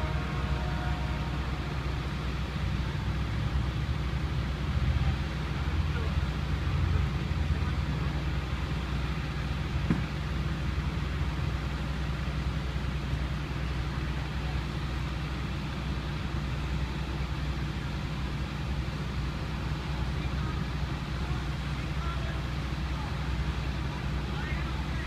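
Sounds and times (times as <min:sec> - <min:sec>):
idling vehicle engine drone: 0:00.0 - 0:25.0
short knock: 0:09.8 - 0:10.1.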